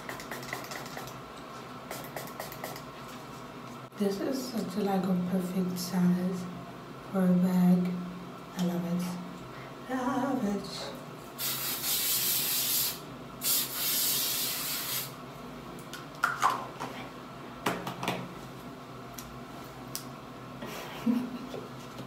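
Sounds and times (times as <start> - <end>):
aerosol spray hissing: 11.4 - 15.2.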